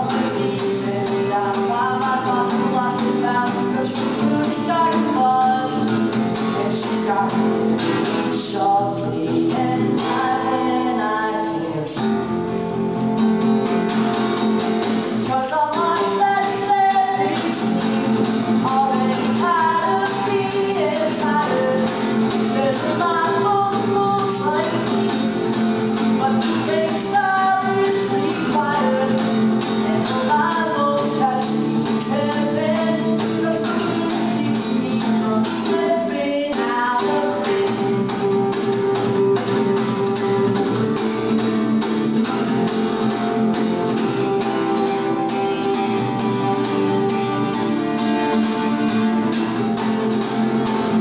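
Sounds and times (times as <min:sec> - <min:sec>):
acoustic guitar: 0:00.0 - 0:51.0
man singing: 0:06.6 - 0:12.1.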